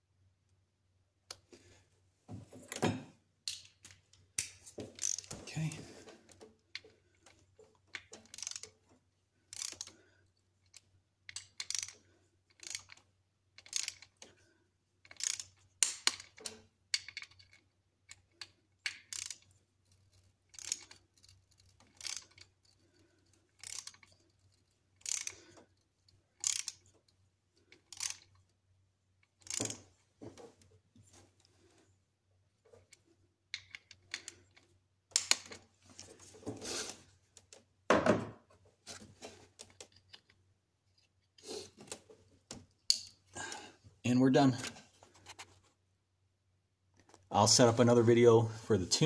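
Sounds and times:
torque wrench ratchet clicking: 0:05.0 - 0:05.3, 0:08.3 - 0:08.7, 0:09.5 - 0:09.9, 0:10.7 - 0:13.0, 0:13.6 - 0:14.1, 0:15.1 - 0:16.3, 0:18.9 - 0:19.4, 0:20.6 - 0:21.0, 0:21.6 - 0:22.4, 0:23.6 - 0:24.1, 0:25.0 - 0:25.4, 0:26.4 - 0:26.8, 0:29.4 - 0:29.8.

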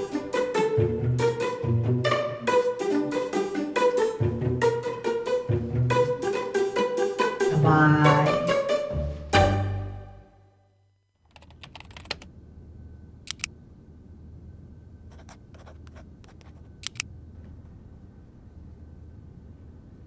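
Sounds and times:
music: 0:00.0 - 0:10.8
low steady hum: 0:07.4 - 0:20.0
keyboard key clicks: 0:11.3 - 0:12.3, 0:13.3 - 0:13.5, 0:16.4 - 0:17.0.

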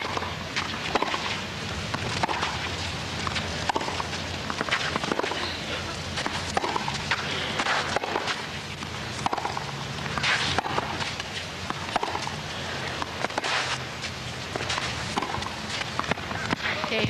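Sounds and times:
tennis ball bouncing on court: 0:00.0 - 0:05.4, 0:06.2 - 0:13.8, 0:14.5 - 0:17.0
crowd murmuring: 0:02.8 - 0:08.0.

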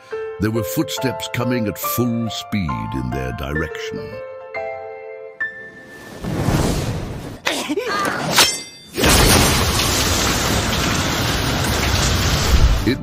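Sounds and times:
snow blasting through trees: 0:05.8 - 0:07.4.

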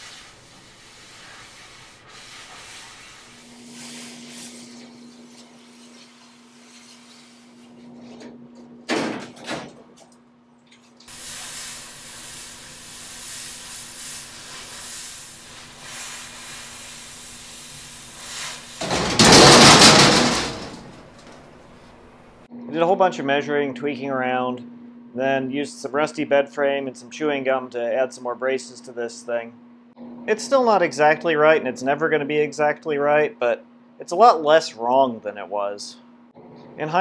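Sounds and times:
cutting torch hissing: 0:00.0 - 0:07.6, 0:11.1 - 0:18.9.

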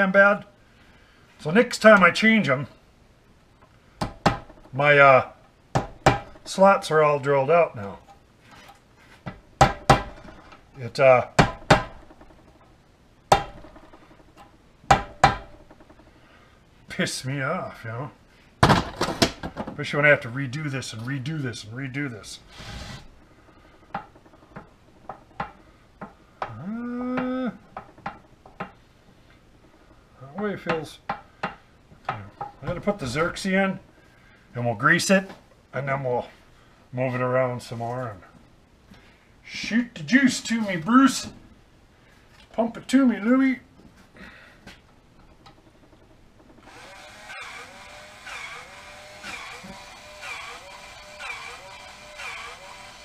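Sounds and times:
universal joint clicks and knocks: 0:23.8 - 0:28.8
grease gun motor whine: 0:46.6 - 0:53.0.

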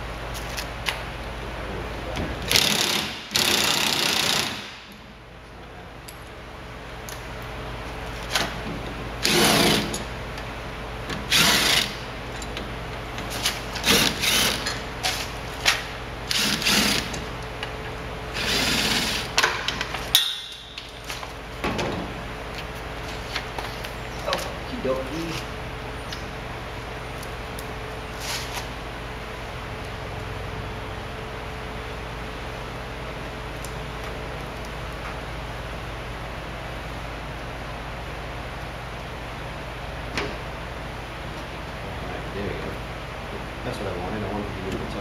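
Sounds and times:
cordless drill driving bolts: 0:02.5 - 0:04.9, 0:09.2 - 0:10.0, 0:11.3 - 0:12.0, 0:13.8 - 0:14.8, 0:16.3 - 0:17.2.

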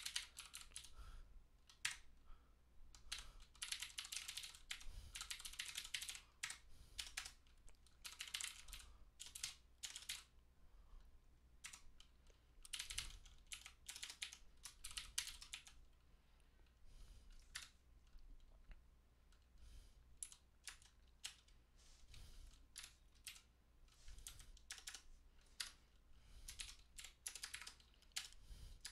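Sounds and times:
computer keyboard typing: 0:00.0 - 0:01.0, 0:01.7 - 0:02.1, 0:02.9 - 0:10.3, 0:11.6 - 0:15.8, 0:17.3 - 0:17.8, 0:20.2 - 0:21.6, 0:22.7 - 0:23.5, 0:24.2 - 0:25.8, 0:26.4 - 0:28.9.

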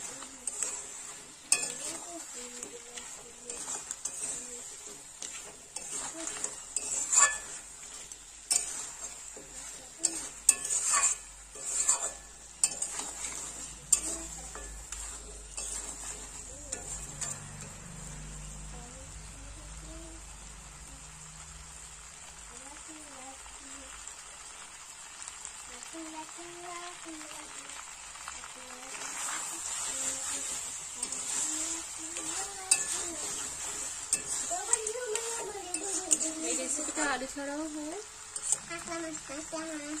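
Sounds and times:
metal spatula scraping a pan: 0:00.0 - 0:18.7, 0:28.8 - 0:40.0
oil sizzling: 0:00.0 - 0:40.0.

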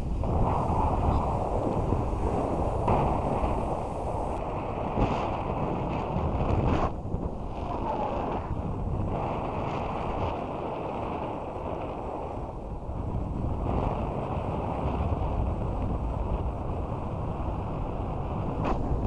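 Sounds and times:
snowboard sliding on snow: 0:00.0 - 0:12.5
wind rushing over microphone: 0:00.0 - 0:19.0.

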